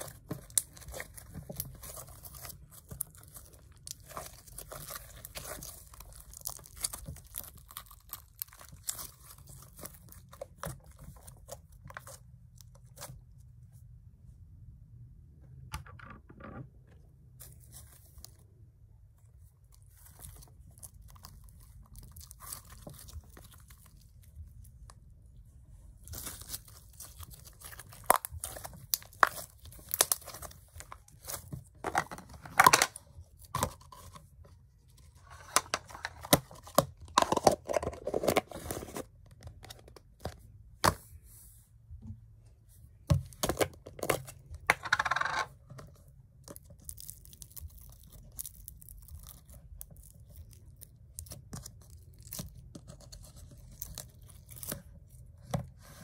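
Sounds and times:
slime crackling and popping: 0:00.0 - 0:11.6, 0:26.0 - 0:31.5, 0:46.4 - 0:55.2.

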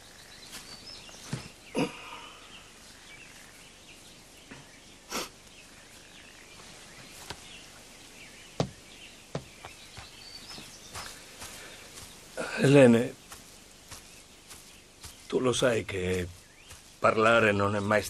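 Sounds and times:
faint bird chirps: 0:00.0 - 0:18.0
sharp knocks: 0:08.6 - 0:09.8.

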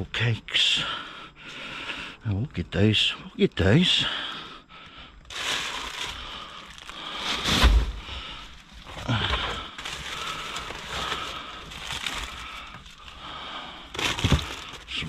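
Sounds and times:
plastic packaging rustling: 0:05.2 - 0:13.3, 0:13.9 - 0:15.0
heavy thump: 0:07.4 - 0:08.1
items knocking: 0:13.9 - 0:14.9.

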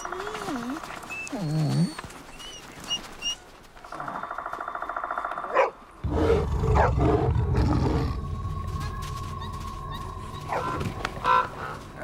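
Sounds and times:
wolves whining: 0:00.0 - 0:03.4, 0:05.5 - 0:12.0
wolf yelping: 0:05.5 - 0:08.1, 0:09.2 - 0:11.6
wolves growling: 0:06.0 - 0:12.0.

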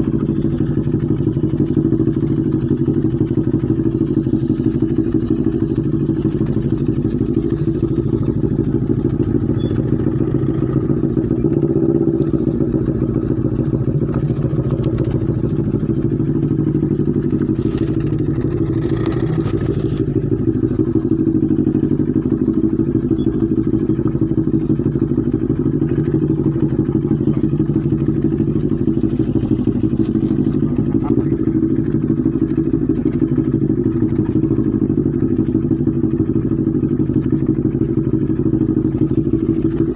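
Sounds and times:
motorcycle engines chugging: 0:00.0 - 0:39.9.

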